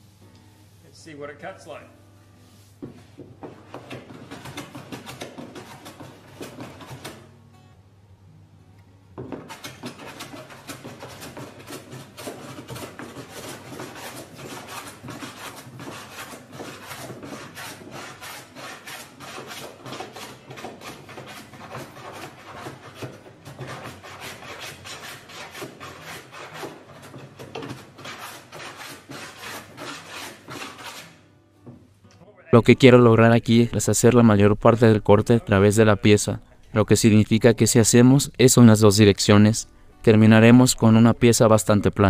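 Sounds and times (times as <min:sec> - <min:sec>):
hand plane shaving wood: 0:03.4 - 0:07.3, 0:09.3 - 0:31.2.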